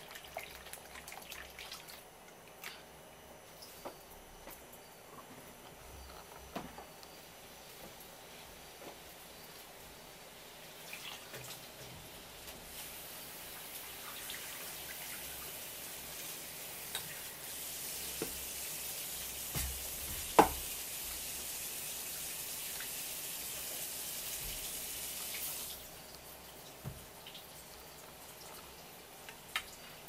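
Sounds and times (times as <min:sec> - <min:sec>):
broth simmering in a pan: 0:07.1 - 0:30.0.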